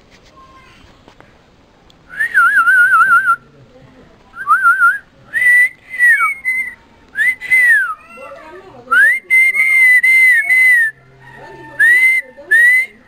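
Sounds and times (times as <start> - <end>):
person whistling: 2.1 - 3.4, 4.4 - 8.0.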